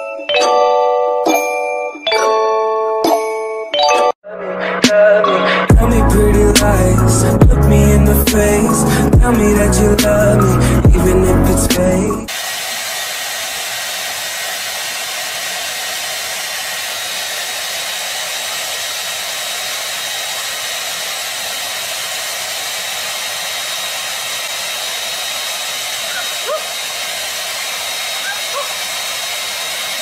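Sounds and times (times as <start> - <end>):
hair dryer running: 5.7 - 30.0.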